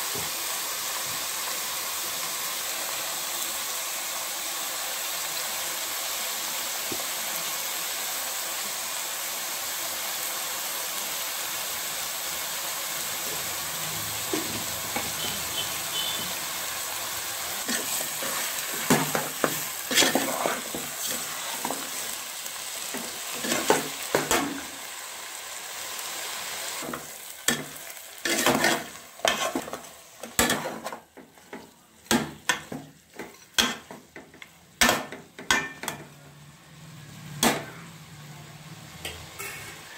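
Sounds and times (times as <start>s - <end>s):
meat sizzling in oil: 0.0s - 38.2s
metal spoon scraping a pot: 28.3s - 29.8s, 39.4s - 39.8s.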